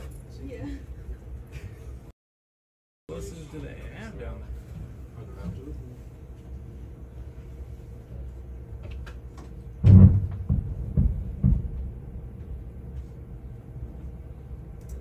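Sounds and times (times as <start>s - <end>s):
steady low rumble: 3.3s - 15.0s.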